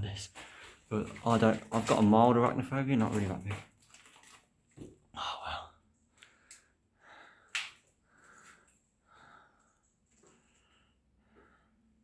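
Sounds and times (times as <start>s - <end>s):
close breathing: 0.3s - 0.9s, 5.2s - 12.0s.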